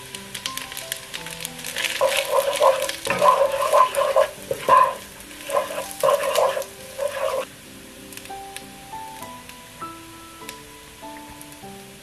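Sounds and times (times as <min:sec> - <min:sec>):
spatula scraping rice in a wok: 0:01.6 - 0:07.5.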